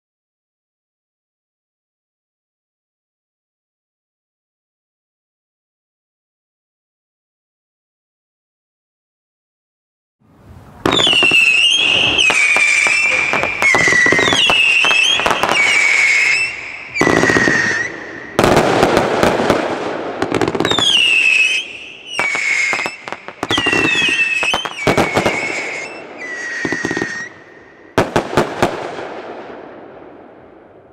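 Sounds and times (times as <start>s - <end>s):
firework pops and crackle: 10.8s - 27.4s
whistling firework shots: 10.8s - 30.2s
firework bangs: 10.8s - 30.9s.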